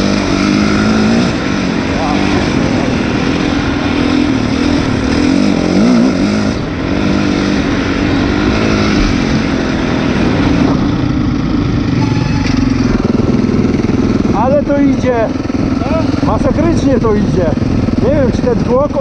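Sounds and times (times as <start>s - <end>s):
motocross bike engine revving: 0.0s - 19.0s.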